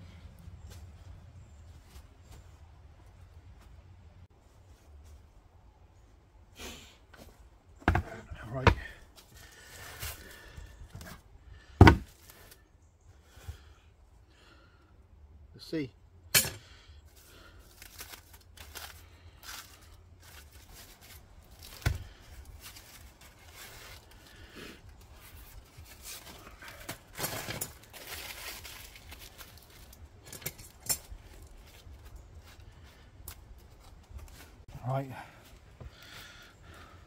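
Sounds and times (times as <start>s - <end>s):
aluminium foil crinkling and tearing: 17.6s - 32.0s.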